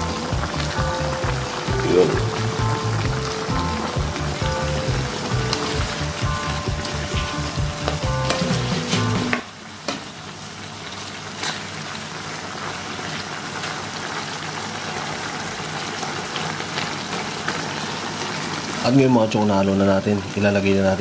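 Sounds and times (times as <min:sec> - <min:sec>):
background music: 0:00.0 - 0:09.3
sauce bubbling and sizzling: 0:00.0 - 0:21.0.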